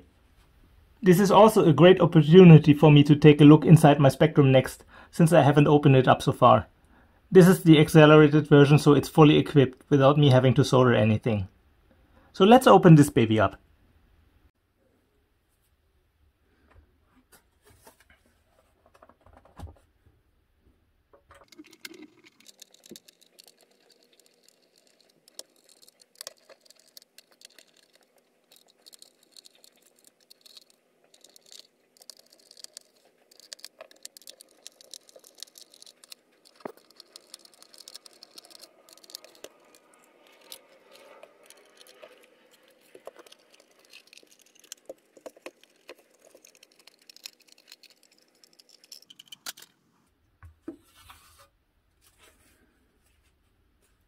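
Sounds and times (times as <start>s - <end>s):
screwdriver clicking and scraping: 21.4s - 49.8s.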